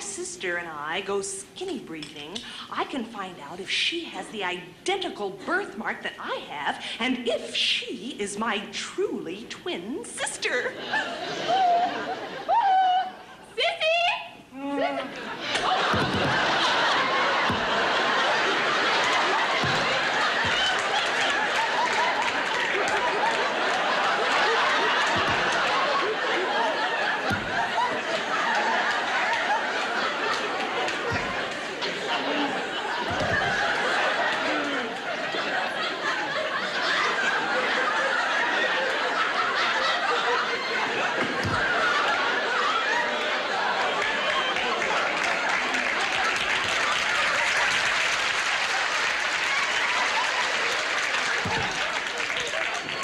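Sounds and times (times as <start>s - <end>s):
studio audience laughing: 10.5s - 13.5s, 14.9s - 53.0s.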